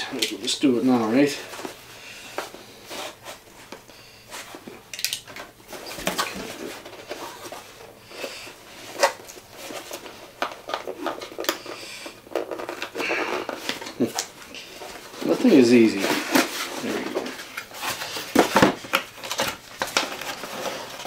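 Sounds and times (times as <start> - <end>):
cardboard box and paper rustling: 5.7 - 7.8, 12.3 - 21.0.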